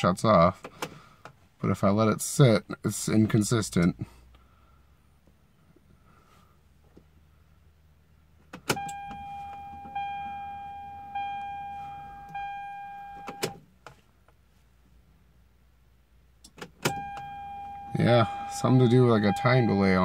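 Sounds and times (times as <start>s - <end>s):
ignition key clicks: 8.5s - 10.4s, 12.2s - 13.6s, 16.4s - 17.9s
dashboard warning chime: 8.7s - 13.6s, 16.8s - 20.0s.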